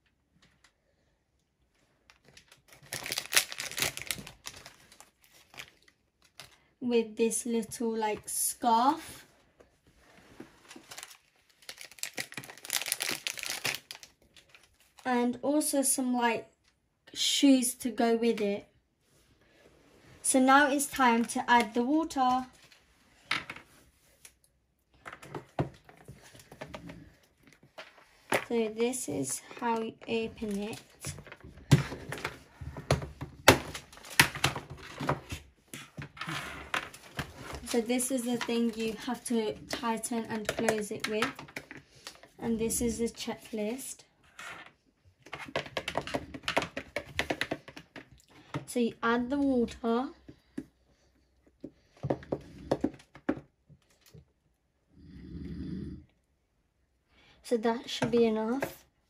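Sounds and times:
plastic packaging crinkling: 0:02.1 - 0:06.7, 0:10.6 - 0:15.1.

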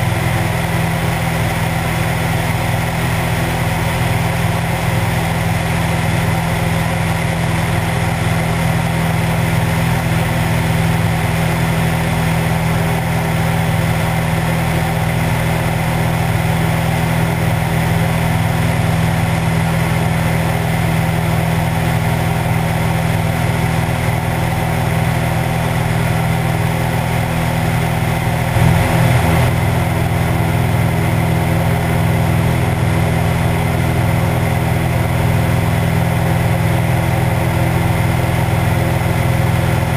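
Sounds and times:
plane engine and propeller droning: 0:00.0 - 0:39.9
air rushing past plane: 0:28.4 - 0:31.5.

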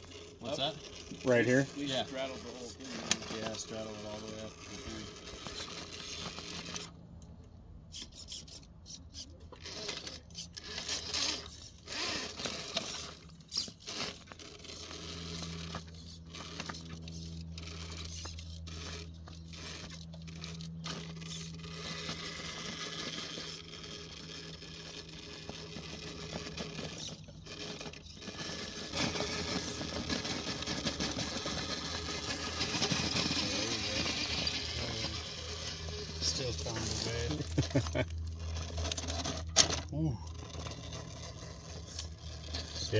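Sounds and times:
tyres scraping on rock: 0:00.0 - 0:07.0, 0:07.9 - 0:42.9
electric motor whir: 0:00.0 - 0:42.9.

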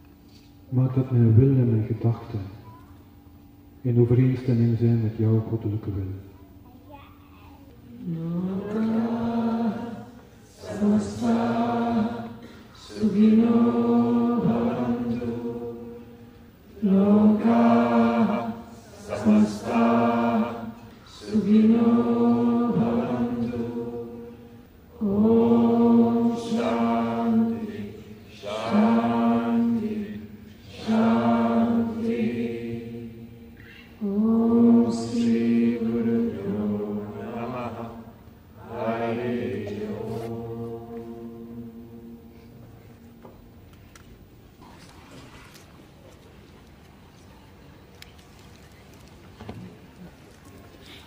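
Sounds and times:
crowd chanting in unison: 0:08.1 - 0:33.4, 0:34.0 - 0:42.8.

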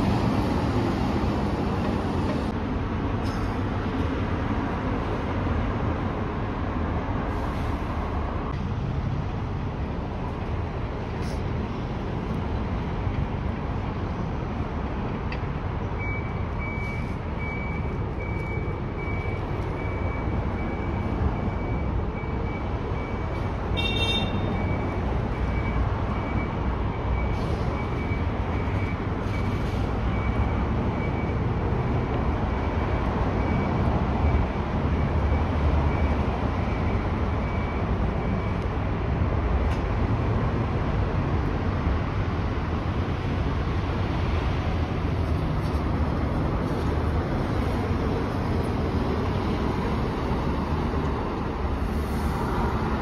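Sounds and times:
diesel bus engines running: 0:00.0 - 0:53.0
reversing alarm beeping: 0:15.9 - 0:38.8.

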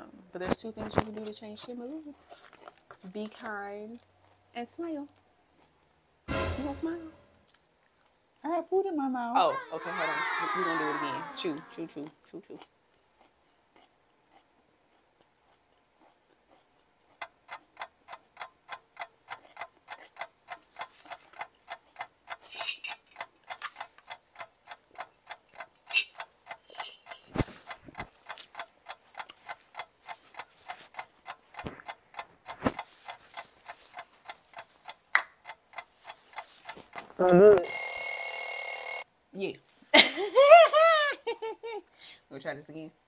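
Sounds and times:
clock ticking: 0:17.2 - 0:39.0.

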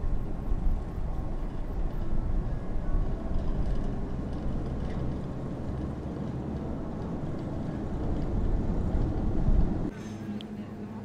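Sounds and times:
ropeway cable and machinery rumble: 0:00.0 - 0:11.0.

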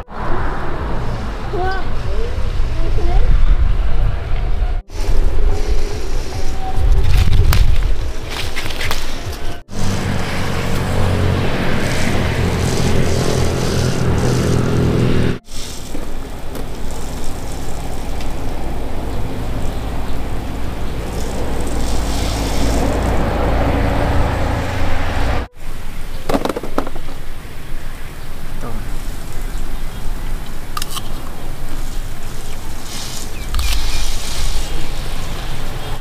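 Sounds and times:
vehicle engine running: 0:09.2 - 0:25.8.

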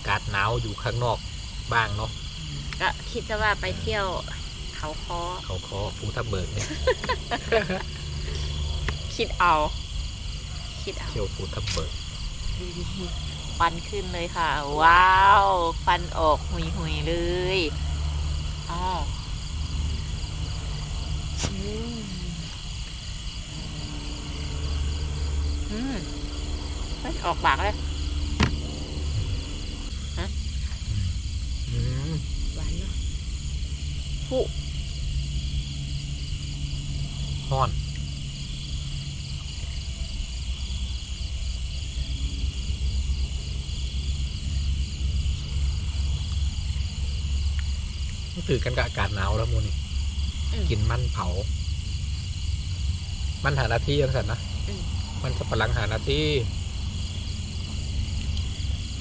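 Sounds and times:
crickets chirping: 0:00.0 - 0:59.0
frogs croaking: 0:00.0 - 0:59.0
steady low rumble: 0:00.0 - 0:59.0
person murmuring: 0:30.2 - 0:32.3.

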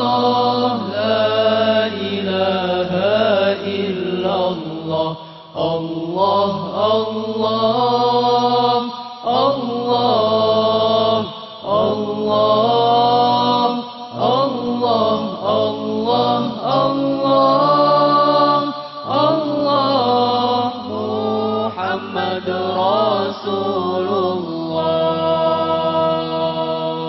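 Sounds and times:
men chanting devotional song: 0:00.0 - 0:27.0.

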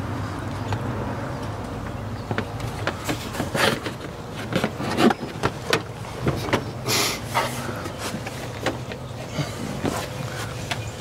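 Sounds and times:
plastic knocking and scraping on metal: 0:01.8 - 0:06.8.

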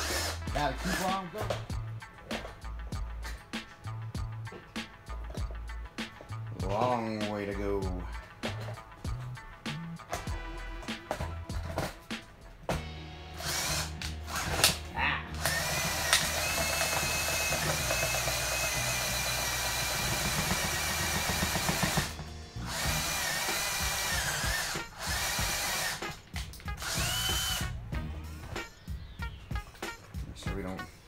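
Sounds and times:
power drill boring through plastic: 0:00.0 - 0:01.6, 0:13.4 - 0:14.8, 0:15.4 - 0:26.1, 0:26.8 - 0:27.7.

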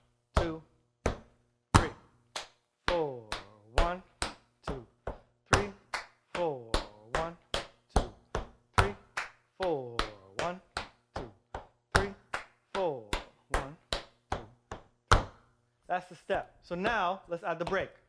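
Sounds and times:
tap shoes on wooden floor: 0:13.2 - 0:15.4.

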